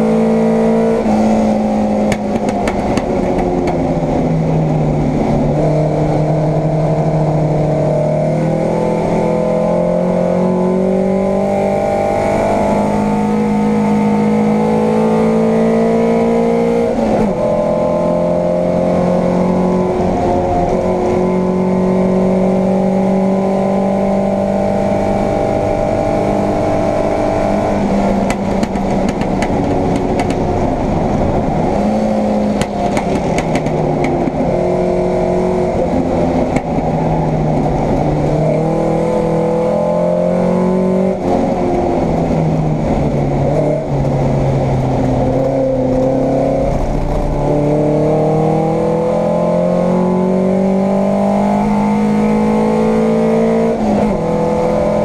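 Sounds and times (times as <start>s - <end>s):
car engine revving: 0.0s - 55.0s.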